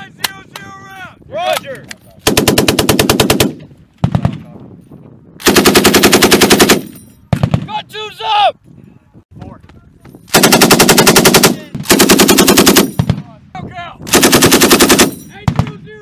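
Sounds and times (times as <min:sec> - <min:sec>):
machine gun firing bursts: 0:02.2 - 0:04.2, 0:05.4 - 0:06.9, 0:10.3 - 0:13.2, 0:14.1 - 0:15.6.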